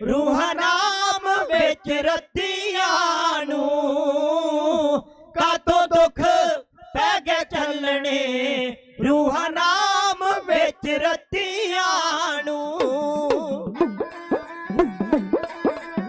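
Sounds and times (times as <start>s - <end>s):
men chanting a ballad: 0.0s - 13.5s
sharp drum taps: 12.8s - 16.0s.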